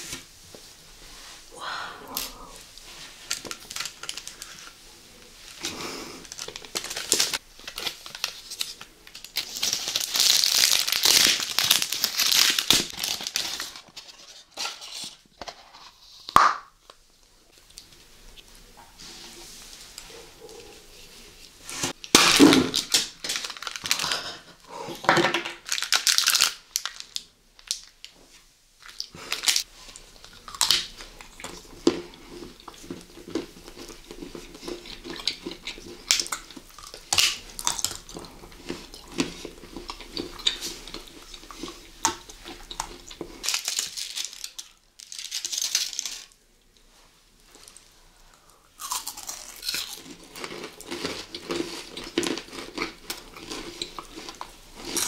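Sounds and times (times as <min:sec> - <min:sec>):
crisp crunches and clicks: 0:03.2 - 0:04.8, 0:05.4 - 0:15.7, 0:22.0 - 0:24.4, 0:25.4 - 0:28.1, 0:28.8 - 0:46.4
food being bitten and chewed: 0:28.8 - 0:46.2, 0:47.5 - 0:55.0.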